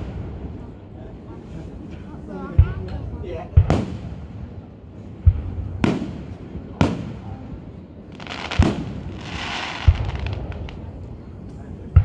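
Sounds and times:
crackling hiss of fireworks: 0.0 - 12.0
fireworks bangs: 5.2 - 7.5, 8.1 - 10.9.

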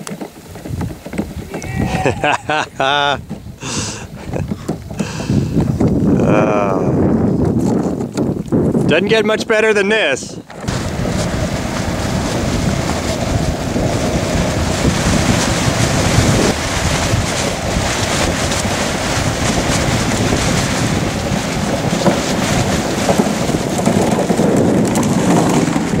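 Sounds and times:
runners hissing on ice: 0.0 - 5.6
wind buffeting microphone: 0.0 - 26.0.

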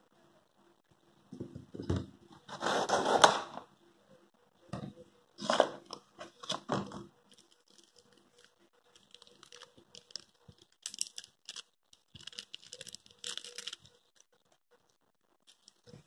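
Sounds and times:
plastic and cardboard packaging crinkling: 5.4 - 16.0.

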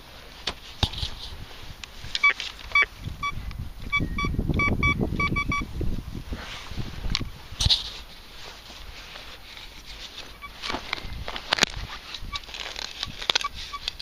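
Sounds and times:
metal detector beeping: 2.2 - 5.7, 10.3 - 10.7, 13.3 - 14.0
low rustling: 5.6 - 13.9.

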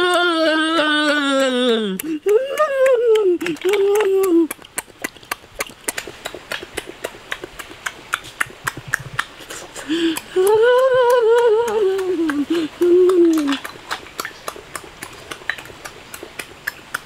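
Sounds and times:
wet mouth clicks and smacks: 0.0 - 17.0
man humming mmm: 8.9 - 13.6.

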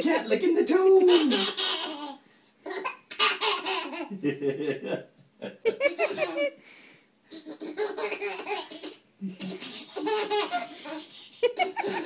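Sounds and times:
baby laughing: 1.1 - 4.2, 5.7 - 6.6, 7.3 - 12.0.

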